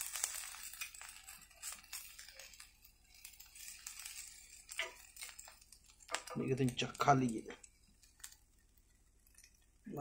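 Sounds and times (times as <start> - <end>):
metal spatula scraping a pan: 0.0 - 7.0.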